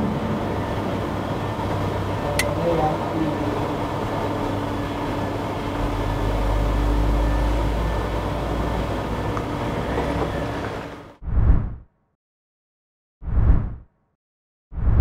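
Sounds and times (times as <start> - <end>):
mechanical hum: 0.0 - 11.2
loud whoosh: 11.2 - 11.9, 13.2 - 13.9, 14.8 - 15.0
low rumble: 11.2 - 11.9.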